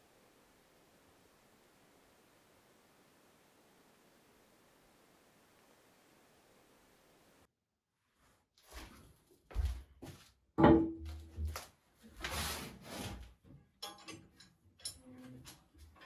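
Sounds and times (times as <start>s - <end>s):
iron pot knocks and scrapes: 10.6s - 11.5s.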